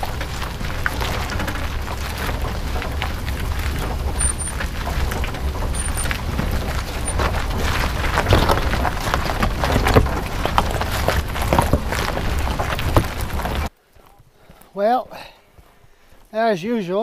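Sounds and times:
wind buffeting microphone: 0.0s - 13.7s.

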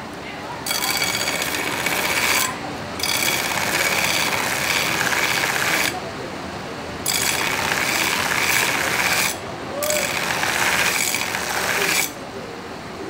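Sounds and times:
belt grinder grinding steel blade: 0.7s - 6.0s, 7.1s - 12.2s.

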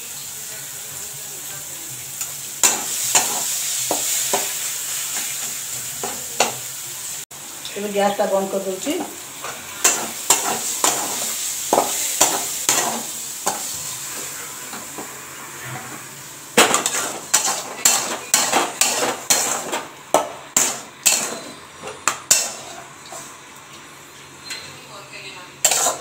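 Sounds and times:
faint sizzle: 0.0s - 26.0s
metal spatula stirring in pan: 2.6s - 6.6s, 9.4s - 14.9s, 16.6s - 23.4s, 25.6s - 26.0s.

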